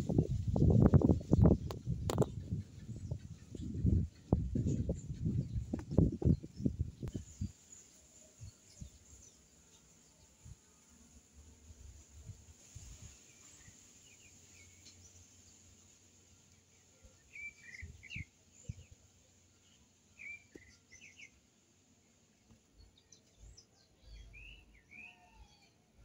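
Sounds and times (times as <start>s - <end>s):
faint bird chirps: 16.8s - 21.4s, 22.8s - 25.9s.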